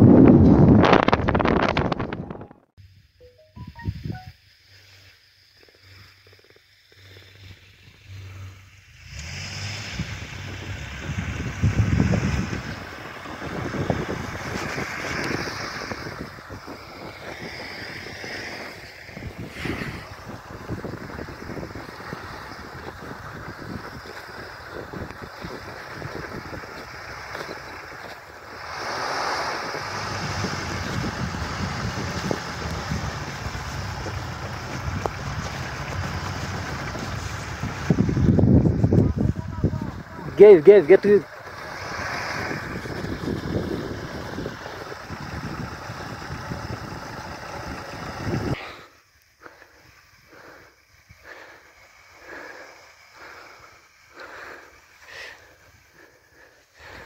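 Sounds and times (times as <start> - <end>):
wind buffeting microphone: 0.0 - 2.7, 9.5 - 48.6
jeep engine running: 5.8 - 57.0
person breathing heavily: 48.5 - 57.0.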